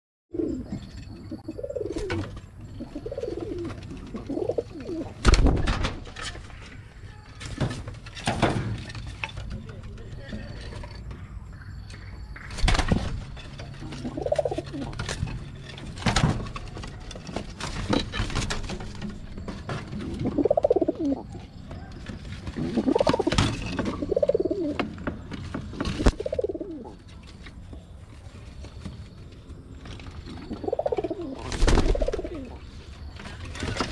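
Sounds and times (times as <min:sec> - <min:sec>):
pigeons cooing: 0:00.3 - 0:05.2, 0:13.6 - 0:15.6, 0:17.4 - 0:27.0, 0:30.0 - 0:33.9.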